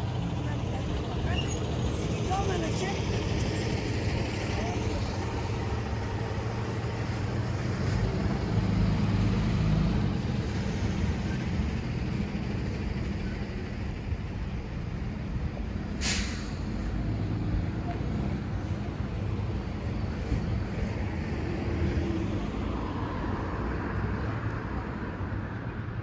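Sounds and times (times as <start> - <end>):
vehicle rumble: 0.0 - 26.0
short sharp hiss: 16.0 - 16.7.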